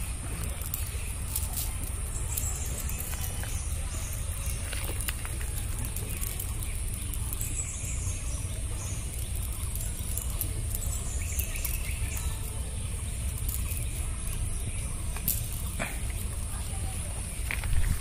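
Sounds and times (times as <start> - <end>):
steady high-pitched hiss: 0.0 - 18.0
steady low rumble: 0.0 - 18.0.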